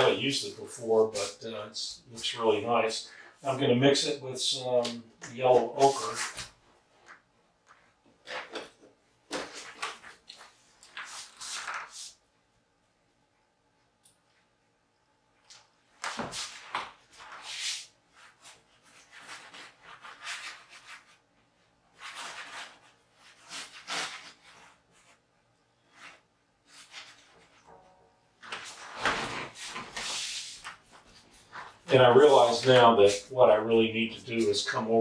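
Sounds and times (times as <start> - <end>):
paintbrush scrubbing on canvas: 29.4 - 34.8.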